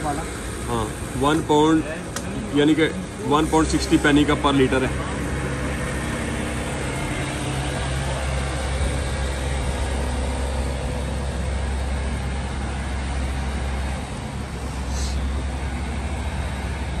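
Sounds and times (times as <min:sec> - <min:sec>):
fuel pump humming: 0:00.0 - 0:17.0.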